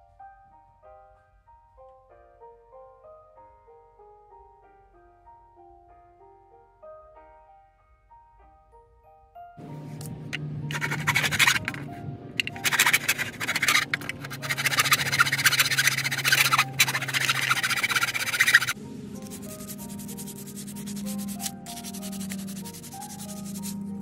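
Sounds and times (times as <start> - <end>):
background music: 0.0 - 24.0
hand saw cutting wood: 10.7 - 11.8, 12.4 - 23.8.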